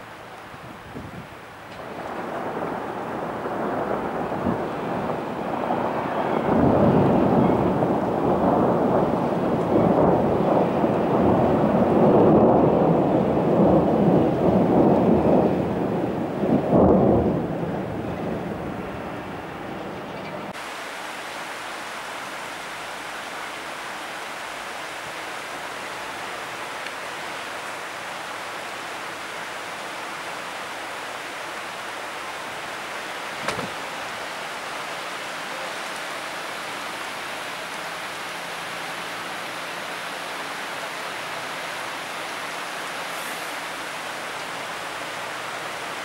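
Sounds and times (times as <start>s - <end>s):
heavy rain and hail: 0.0s - 46.0s.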